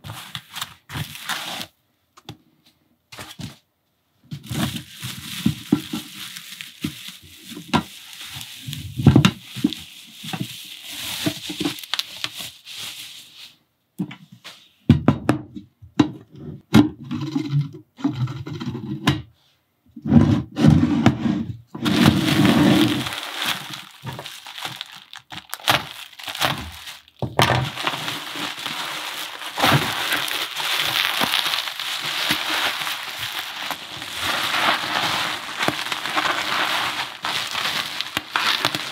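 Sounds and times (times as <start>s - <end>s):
bubble wrap crinkling: 0.0s - 1.8s, 4.3s - 13.5s, 21.8s - 38.9s.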